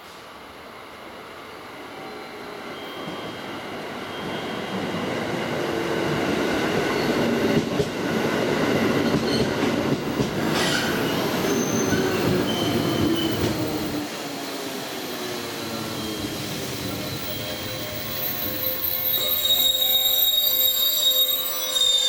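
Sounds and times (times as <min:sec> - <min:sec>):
faint brake squeals: 0:10.6 - 0:13.6, 0:15.8 - 0:22.0.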